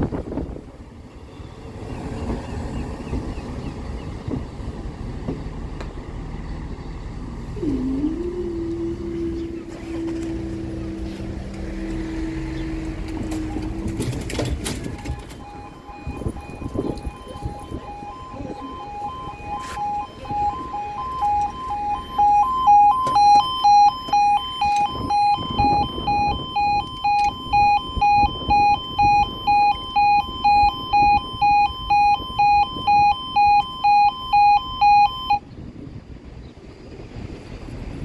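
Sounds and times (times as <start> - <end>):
two-tone level crossing alarm: 12.8 - 35.4.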